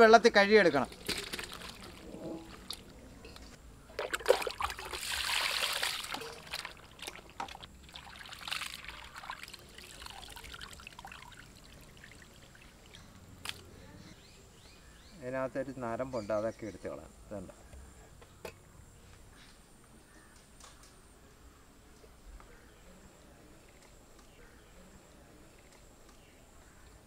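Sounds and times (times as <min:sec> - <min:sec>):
water pouring and splashing: 0:00.9 - 0:02.8, 0:03.9 - 0:13.0.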